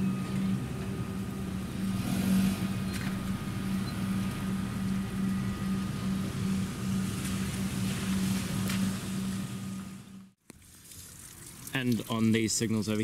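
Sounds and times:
cars driving on wet road: 0:00.0 - 0:10.2
low pulsing hum: 0:00.0 - 0:10.4.

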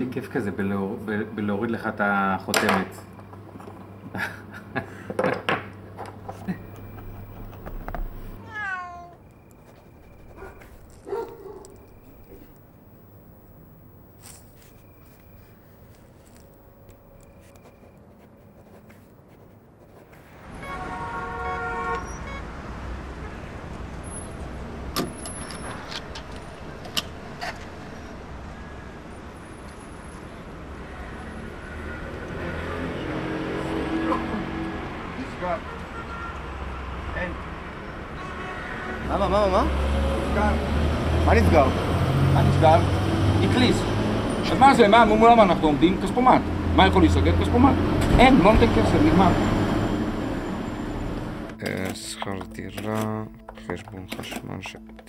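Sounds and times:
street traffic: 0:00.0 - 0:55.0
cat meowing: 0:07.9 - 0:09.4
car horn: 0:20.4 - 0:24.4, 0:30.6 - 0:34.0, 0:35.3 - 0:37.1, 0:38.0 - 0:39.6.

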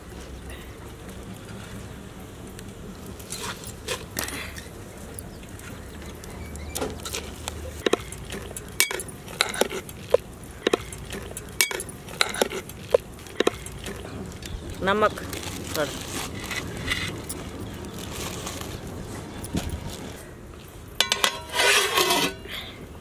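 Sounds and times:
water boiling: 0:00.0 - 0:19.0
metal spoon clinking in pot: 0:07.8 - 0:09.8, 0:10.7 - 0:12.6, 0:21.0 - 0:22.4.

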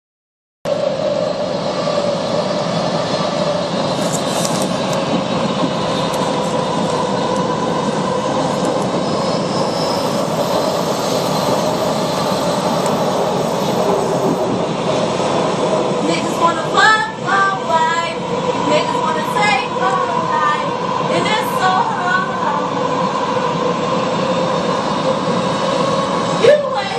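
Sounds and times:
train rumble and rail noise: 0:00.7 - 0:26.9
high steady whine: 0:05.8 - 0:14.6.

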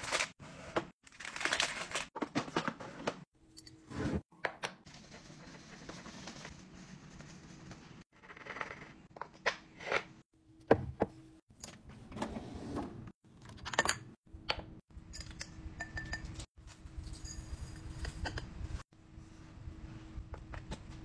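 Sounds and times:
glass jars clinking: 0:15.1 - 0:16.4.

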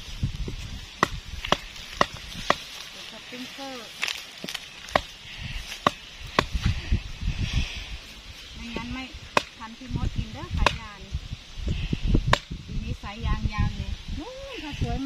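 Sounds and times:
wood knocking on stake: 0:01.0 - 0:02.8, 0:04.0 - 0:06.7, 0:09.3 - 0:09.7, 0:10.6 - 0:10.9.

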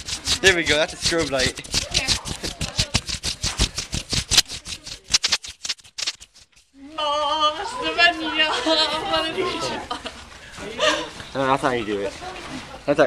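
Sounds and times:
person speaking: 0:00.0 - 0:06.2
hand rubbing on microphone: 0:00.0 - 0:06.8.

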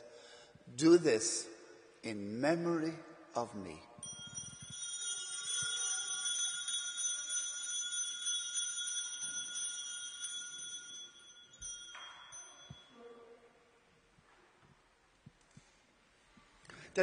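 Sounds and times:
altar bells ringing: 0:03.7 - 0:13.0.

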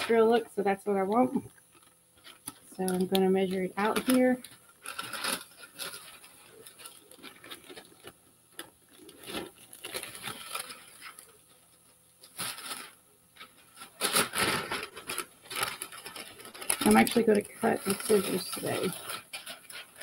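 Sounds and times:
paper rustling and crinkling: 0:01.2 - 0:20.0.

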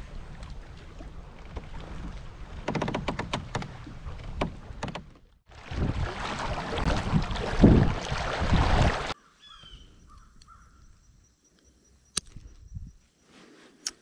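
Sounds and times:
wind buffeting microphone: 0:05.6 - 0:09.2, 0:12.3 - 0:13.0
bird calling faintly: 0:09.2 - 0:14.0.

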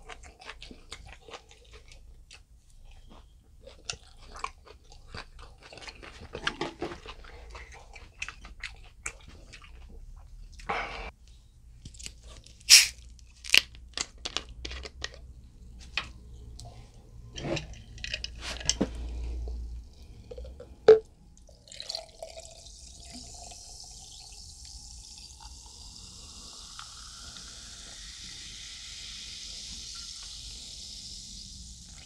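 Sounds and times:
fizzy drink pouring over ice: 0:21.7 - 0:32.0.

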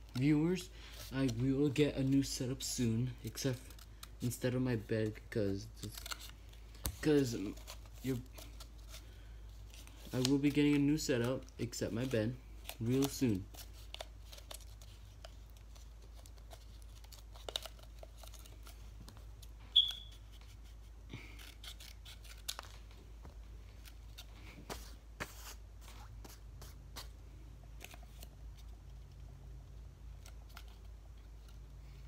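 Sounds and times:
paper rustling: 0:05.8 - 0:27.2
brief high squeak: 0:19.8 - 0:20.1.

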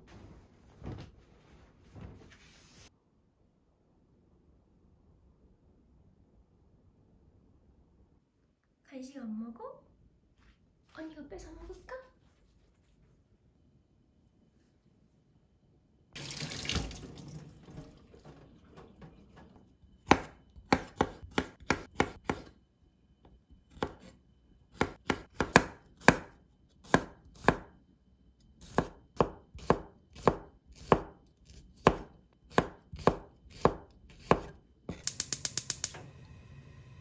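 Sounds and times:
tap water running into sink: 0:16.2 - 0:19.6
knife chopping on wooden board: 0:20.0 - 0:22.5, 0:23.7 - 0:24.1, 0:24.8 - 0:27.7, 0:28.6 - 0:35.7.

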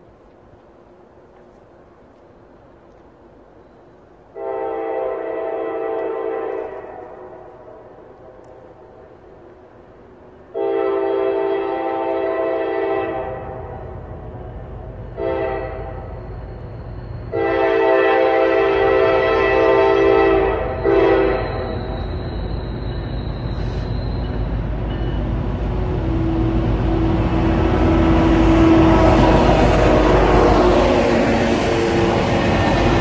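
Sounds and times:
diesel locomotive engines: 0:00.0 - 0:33.0
train wheels on rails: 0:00.0 - 0:33.0
locomotive air horn blasts: 0:04.4 - 0:07.5, 0:10.5 - 0:13.9, 0:15.2 - 0:16.2, 0:17.3 - 0:22.2, 0:25.8 - 0:33.0.

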